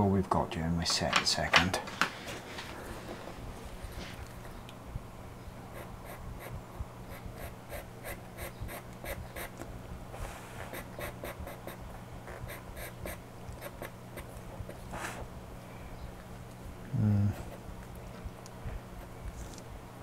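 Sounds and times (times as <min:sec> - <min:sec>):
pencil scratching on paper: 0:10.6 - 0:15.2.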